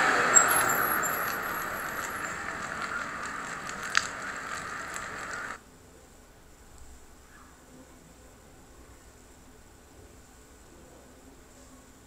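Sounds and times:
fire burning with a hiss: 0.0 - 5.6.

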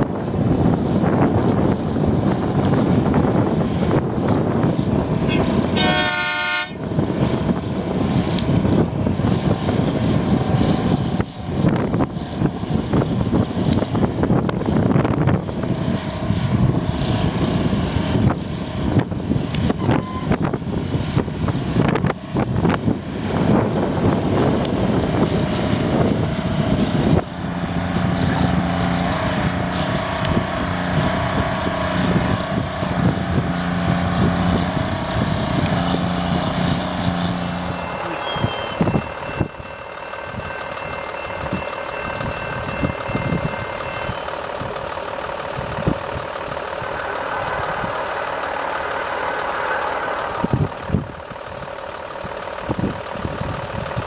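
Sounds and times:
diesel locomotive engine drone: 0.0 - 54.0
distant train rumble: 0.0 - 54.0
snow plow and wheels rushing: 0.0 - 54.0.

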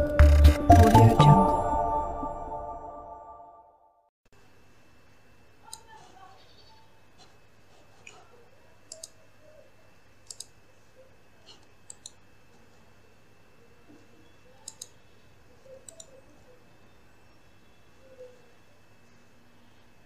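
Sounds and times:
faint steady hum: 4.4 - 20.0
computer mouse clicking: 5.7 - 6.0, 8.8 - 9.2, 10.2 - 10.6, 11.5 - 12.2, 14.6 - 15.0, 15.7 - 16.2.

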